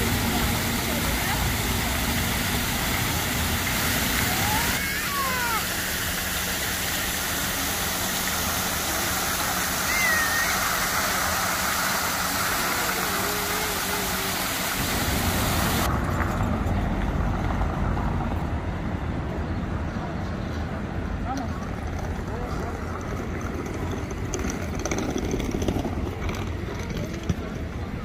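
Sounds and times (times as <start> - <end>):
vehicle traffic: 0.0 - 28.0
short high squeals or calls: 9.8 - 11.0.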